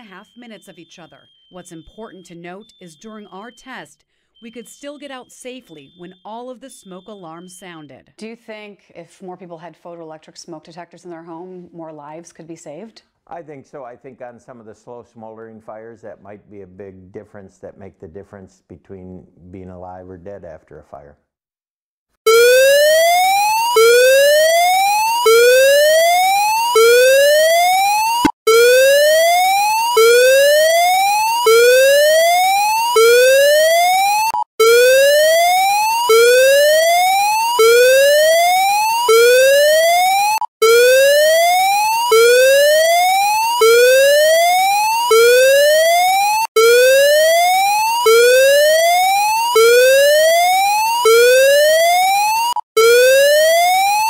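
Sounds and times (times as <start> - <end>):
whooping evacuation alarm: 0.0 - 3.8, 4.4 - 7.6, 22.3 - 54.0.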